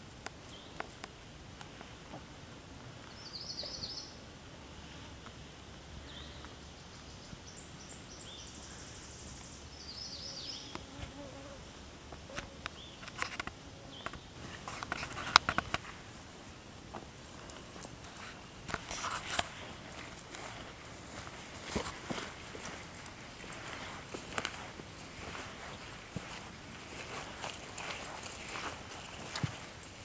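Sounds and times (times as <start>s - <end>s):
flying insects buzzing: 10.4s - 27.9s
footsteps: 12.1s - 30.0s
sharp clicks and knocks: 12.6s - 15.9s.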